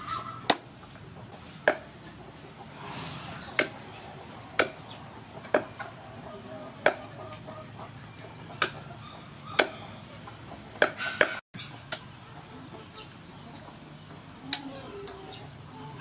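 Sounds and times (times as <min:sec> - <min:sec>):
cleaver chopping on wooden board: 0:03.6 - 0:03.8, 0:04.6 - 0:04.8, 0:08.6 - 0:08.8, 0:09.6 - 0:09.8.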